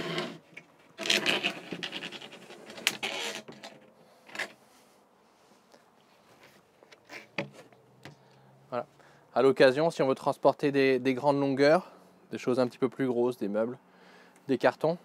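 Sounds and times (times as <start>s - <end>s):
wooden panel scraping on rails: 0.0s - 4.6s.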